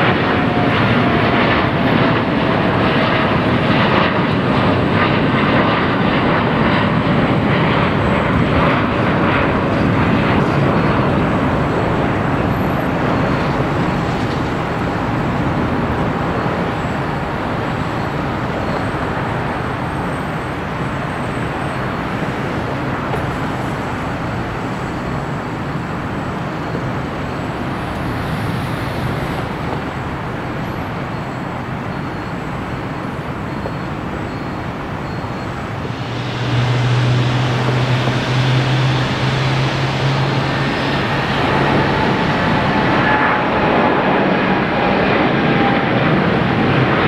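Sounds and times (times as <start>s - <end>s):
jet engines at takeoff: 0.0s - 47.0s
strong low hum: 35.6s - 43.6s.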